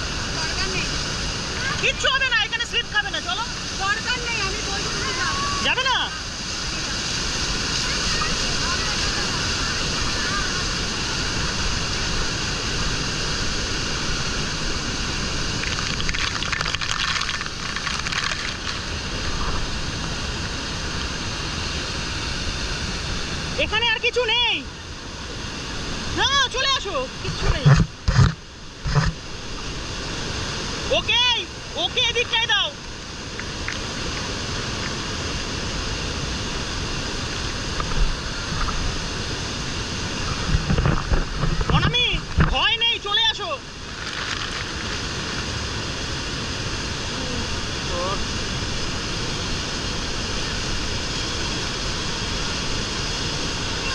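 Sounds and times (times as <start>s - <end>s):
waterfall rushing: 0.0s - 53.9s
waterfall crashing onto wood: 15.5s - 19.1s.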